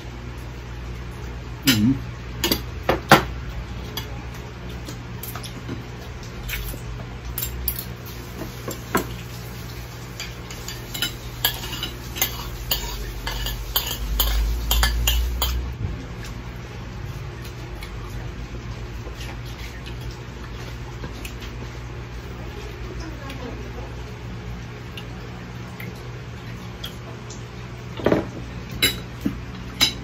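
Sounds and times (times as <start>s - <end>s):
cutlery clinking on plates: 10.2s - 15.7s.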